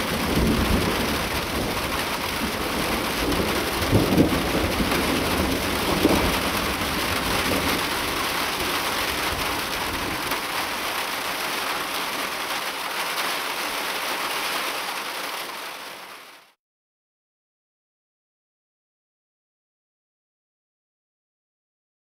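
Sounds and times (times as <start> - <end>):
low thunder rumble: 0.0 - 10.3
heavy rain falling: 0.0 - 16.6.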